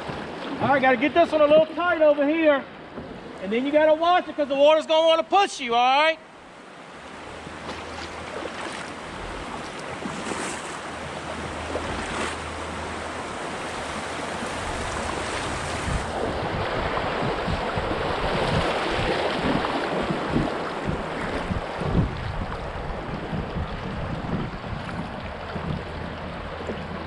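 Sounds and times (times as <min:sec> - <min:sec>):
paddle splashes: 0:00.0 - 0:05.5, 0:06.3 - 0:27.0
river rushing around a kayak: 0:00.0 - 0:27.0
wind buffeting microphone: 0:10.9 - 0:27.0.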